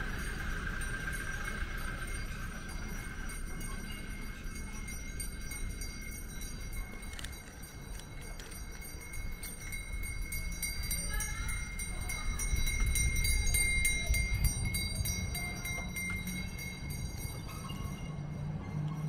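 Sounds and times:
faint voices: 0:00.0 - 0:19.0.

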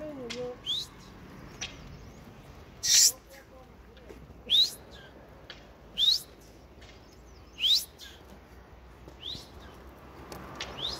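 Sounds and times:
bird calling upward sweeps: 0:05.9 - 0:06.5, 0:07.4 - 0:08.2, 0:09.2 - 0:09.7.

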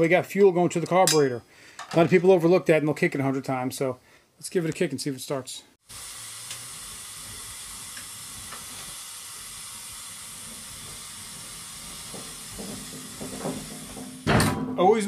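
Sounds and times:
high hiss of room tone: 0:05.8 - 0:14.4.

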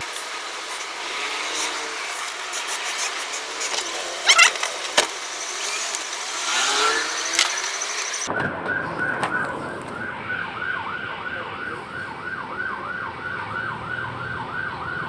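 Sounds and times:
engine revving: 0:00.0 - 0:08.5
street traffic noise: 0:00.0 - 0:15.0.

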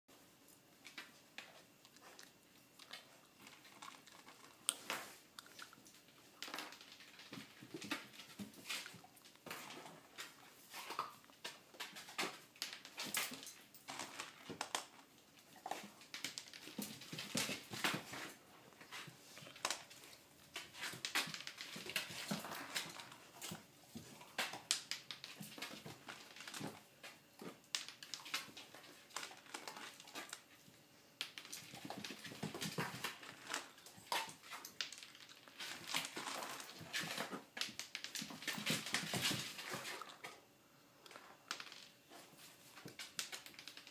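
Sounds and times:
dog eating from bowl: 0:01.4 - 0:15.0, 0:15.6 - 0:26.8, 0:31.2 - 0:40.4.

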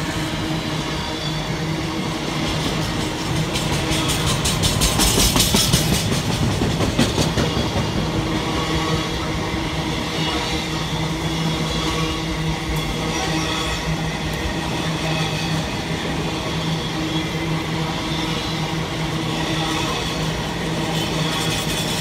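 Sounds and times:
freight train rumble and hum: 0:00.0 - 0:22.0
train wheels clattering: 0:01.3 - 0:09.2, 0:12.7 - 0:22.0.

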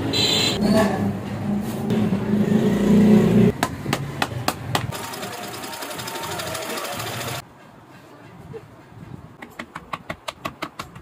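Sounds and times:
industrial sewing machine stitching: 0:04.9 - 0:07.4.

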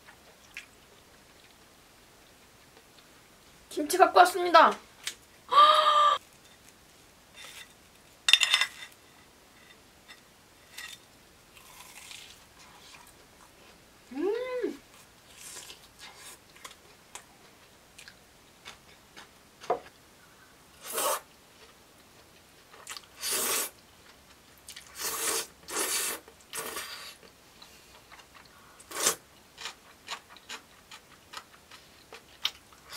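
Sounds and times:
soft chewing: 0:00.0 - 0:03.6, 0:11.6 - 0:13.8, 0:14.9 - 0:20.4, 0:21.5 - 0:23.2, 0:23.9 - 0:25.0, 0:26.2 - 0:32.9
person humming: 0:05.5 - 0:06.2, 0:14.1 - 0:14.8
slurping noodles: 0:24.9 - 0:27.2.

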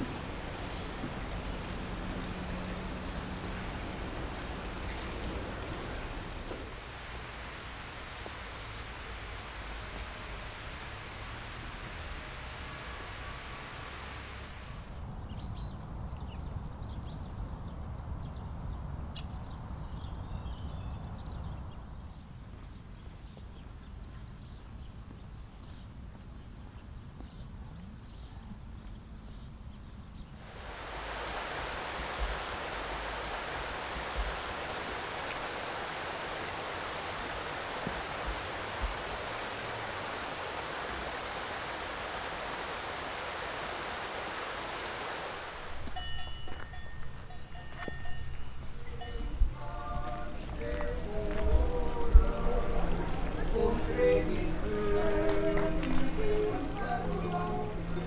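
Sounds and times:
rushing water: 0:00.0 - 0:15.2, 0:30.4 - 0:58.0.

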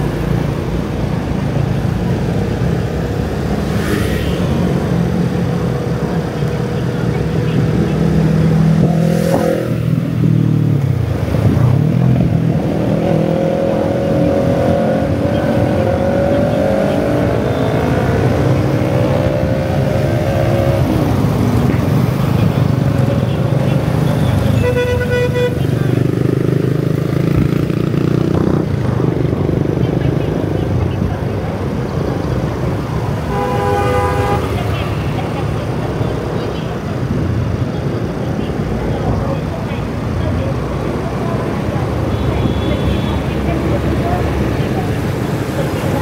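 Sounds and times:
road traffic noise: 0:00.0 - 0:46.0.

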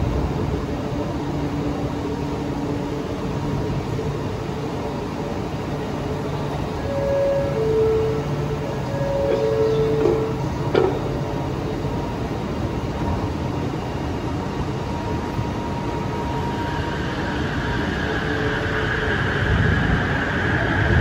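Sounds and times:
train doors closing: 0:00.0 - 0:16.0
train propulsion whine: 0:00.0 - 0:21.0
short tone: 0:06.8 - 0:11.2.

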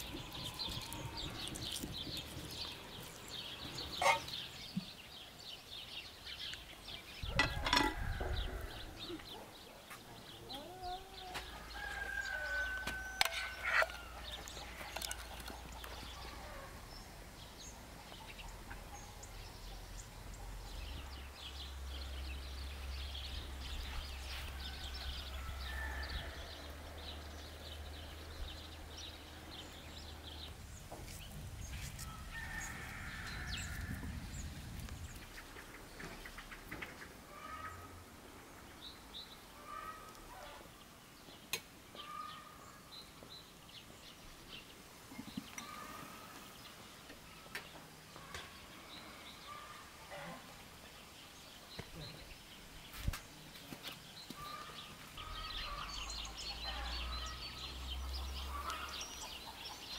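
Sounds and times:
chickens clucking: 0:03.6 - 0:04.5.

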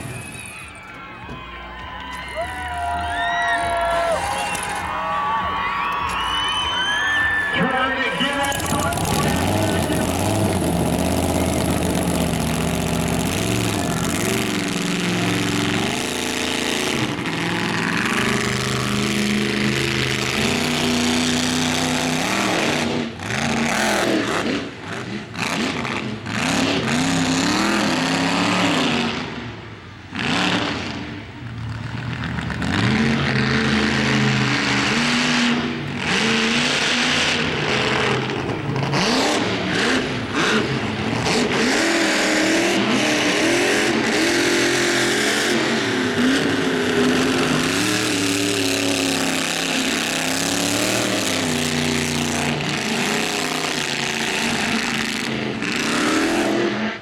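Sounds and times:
truck engine revving: 0:06.2 - 0:57.0.

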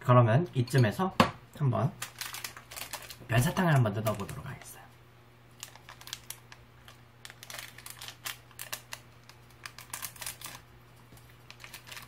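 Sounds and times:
plastic packet crinkling: 0:01.9 - 0:04.8, 0:05.5 - 0:12.0.

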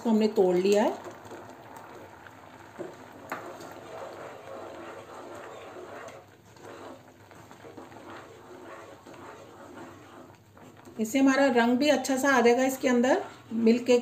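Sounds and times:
ladle stirring: 0:00.0 - 0:14.0
milk bubbling: 0:00.0 - 0:14.0.

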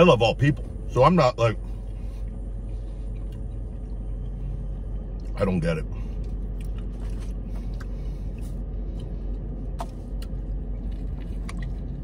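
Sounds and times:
car engine idling: 0:00.0 - 0:12.0
bite of food: 0:09.8 - 0:12.0.

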